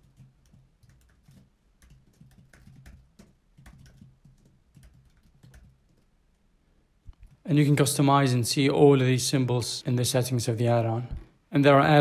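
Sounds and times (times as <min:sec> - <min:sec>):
computer keyboard typing: 0:00.0 - 0:06.1.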